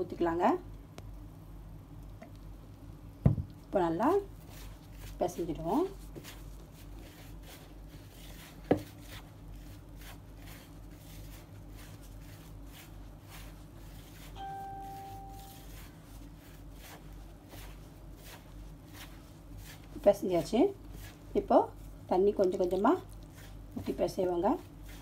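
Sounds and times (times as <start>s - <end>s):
low steady hum: 0.0s - 25.0s
hand rubbing flour: 3.7s - 25.0s
steady tone: 14.4s - 15.8s.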